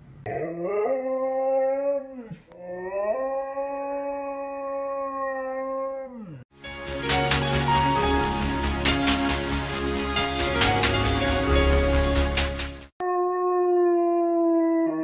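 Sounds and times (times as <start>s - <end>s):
husky howling: 0.3s - 6.4s, 13.0s - 15.0s
music: 6.5s - 12.9s.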